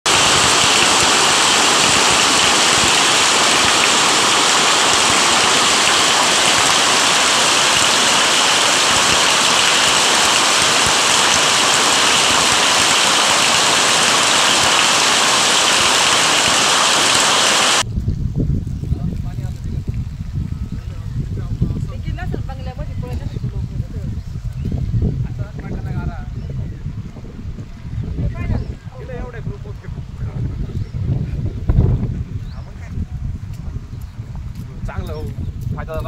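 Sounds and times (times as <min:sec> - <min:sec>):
heavy rain and hail: 0:00.1 - 0:17.9.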